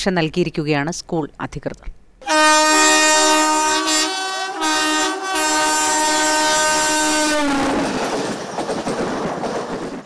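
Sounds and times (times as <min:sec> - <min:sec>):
locomotive horn blast: 0:02.2 - 0:08.1.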